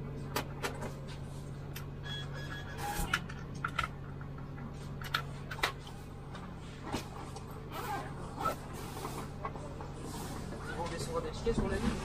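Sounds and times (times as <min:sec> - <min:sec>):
bus engine hum: 0:02.6 - 0:11.8.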